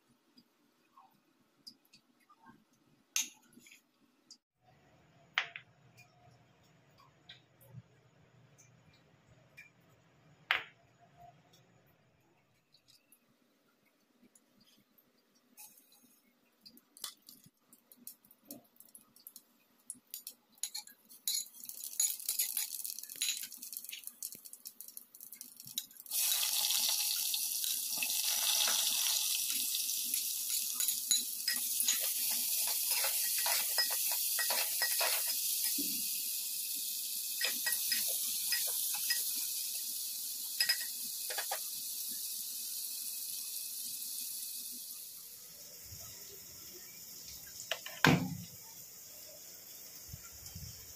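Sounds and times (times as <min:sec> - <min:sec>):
hot oil crackling and popping: 0:13.8 - 0:45.2
onions sizzling in oil: 0:25.7 - 0:50.9.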